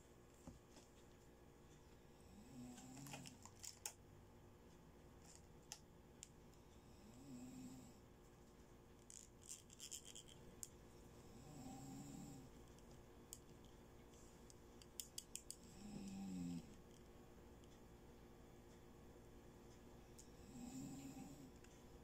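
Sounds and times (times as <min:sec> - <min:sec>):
plastic bangles clicking: 0:03.0 - 0:04.0, 0:09.0 - 0:10.7, 0:14.8 - 0:15.6.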